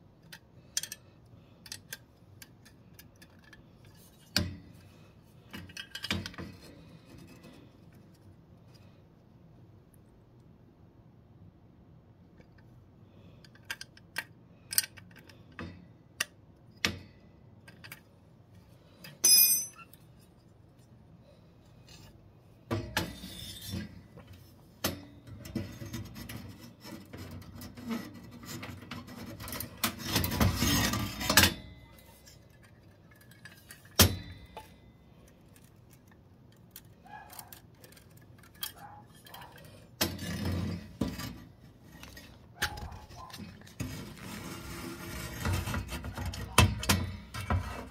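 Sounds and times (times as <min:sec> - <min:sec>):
small metal parts clinking: 0:00.2 - 0:04.3, 0:19.0 - 0:20.4, 0:32.0 - 0:41.0
rustling scrape: 0:38.8 - 0:46.6.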